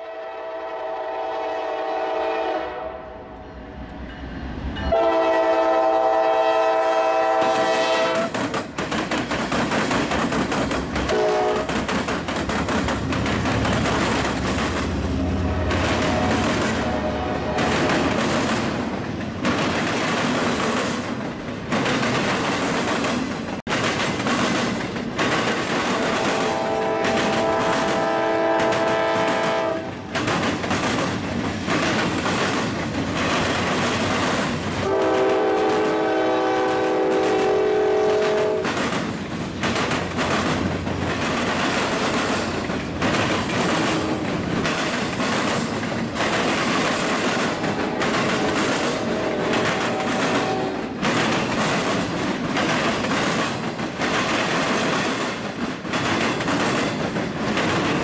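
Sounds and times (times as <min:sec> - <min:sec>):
locomotive horn: 0:00.0 - 0:03.4, 0:04.9 - 0:08.4, 0:11.1 - 0:11.8, 0:15.0 - 0:18.1, 0:25.9 - 0:30.1, 0:34.8 - 0:38.8, 0:43.7 - 0:44.4, 0:47.5 - 0:51.0
train wheels clicking over rail joints: 0:07.0 - 0:58.0.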